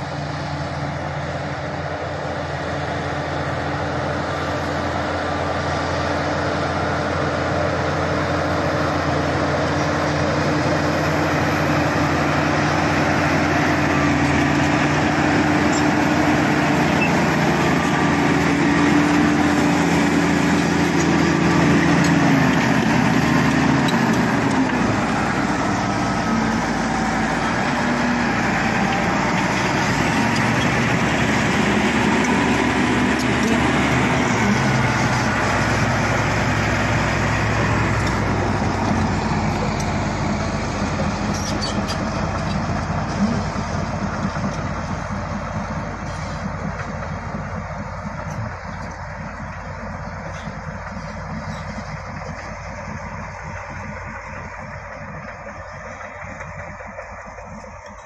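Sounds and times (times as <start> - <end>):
bulldozer diesel engine under load: 0.0 - 58.0.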